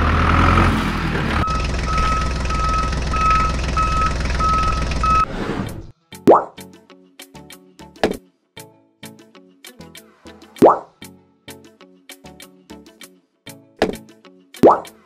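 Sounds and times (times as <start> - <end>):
heavy vehicle engine running: 0.0 - 5.9
reversing alarm beeping: 1.4 - 5.3
rising plop: 6.3 - 6.5, 10.6 - 10.9, 14.6 - 14.9.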